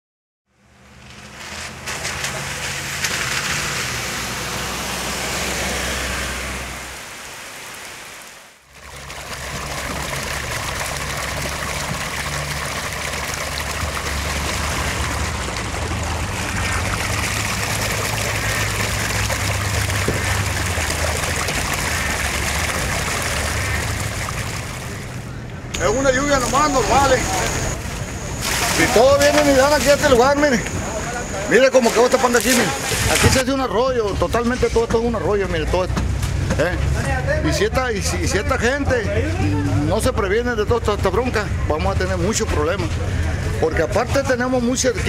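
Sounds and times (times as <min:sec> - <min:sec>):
rushing water: 0:01.2 - 0:33.8.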